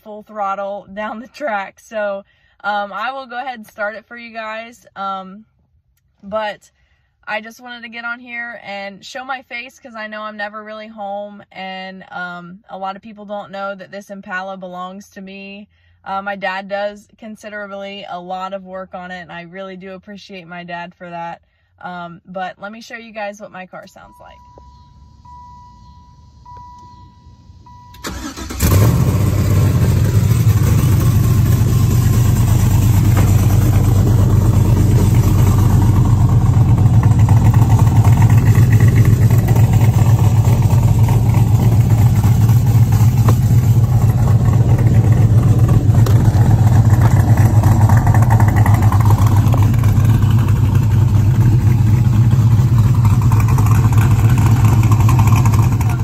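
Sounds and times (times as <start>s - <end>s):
car engine starting and idling: 23.7s - 56.0s
exhaust cutout rattle: 24.7s - 56.0s.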